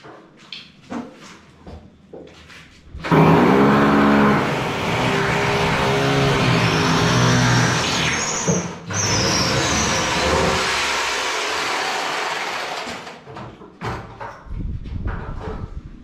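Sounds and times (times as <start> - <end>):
power drill driving a screw: 3.1 - 13.1.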